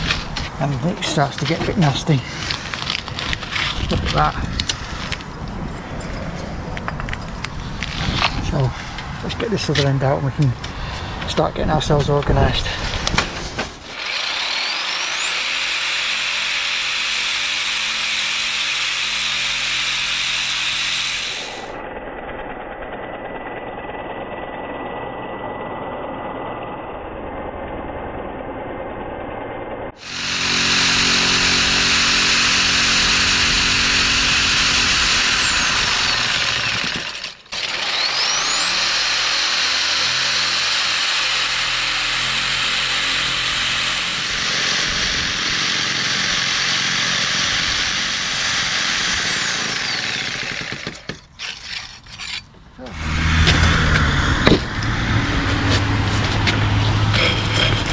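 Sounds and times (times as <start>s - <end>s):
power tool breaking brickwork: 13.0s - 25.8s, 29.9s - 54.9s.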